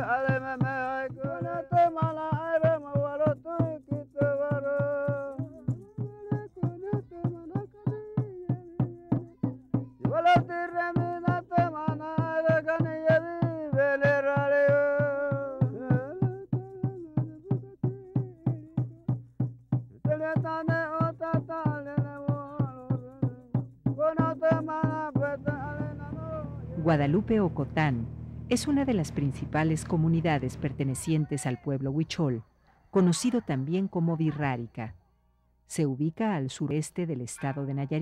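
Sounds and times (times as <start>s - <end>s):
person chanting: 0.0s - 18.7s, 24.0s - 32.4s
steady drum beat: 0.0s - 31.4s.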